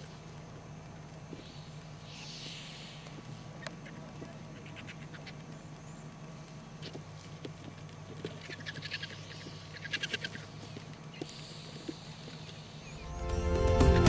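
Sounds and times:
low steady hum: 0:00.0 - 0:14.0
vultures cackling: 0:03.0 - 0:05.8, 0:08.1 - 0:12.7
music: 0:13.0 - 0:14.0.

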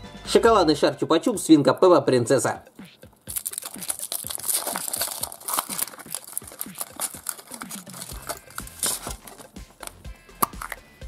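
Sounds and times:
foil wrapper crinkling: 0:03.2 - 0:10.8
chocolate cracking: 0:03.2 - 0:10.9
plastic capsule handled: 0:03.3 - 0:10.9.

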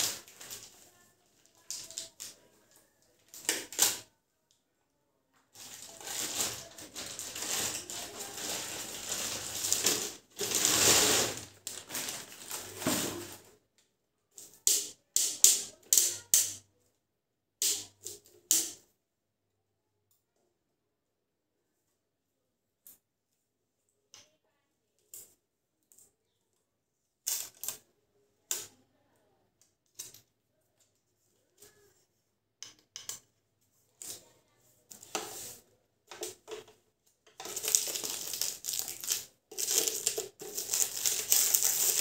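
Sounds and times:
plastic wrapping crinkling: 0:00.0 - 0:02.4, 0:05.6 - 0:13.5, 0:37.4 - 0:42.0.

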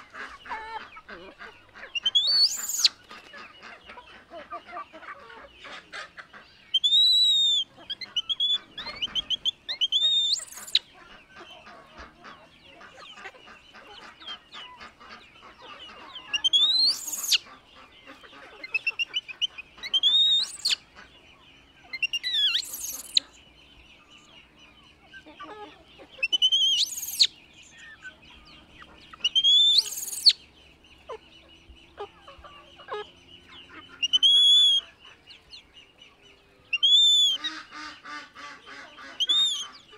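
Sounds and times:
baby monkey screaming: 0:02.0 - 0:02.9, 0:06.8 - 0:10.8, 0:16.3 - 0:17.4, 0:22.0 - 0:23.3, 0:25.3 - 0:27.3, 0:29.2 - 0:30.4, 0:39.1 - 0:39.8.

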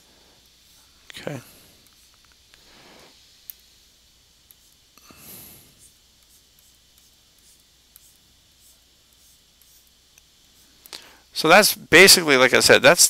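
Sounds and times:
person exhaling: 0:05.0 - 0:05.8.

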